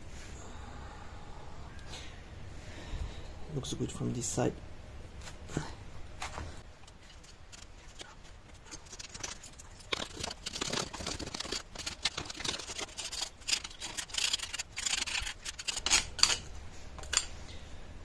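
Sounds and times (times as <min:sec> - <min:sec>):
small clicks of sand and metal: 0:06.8 - 0:17.4
pliers clinking on metal: 0:15.5 - 0:17.3.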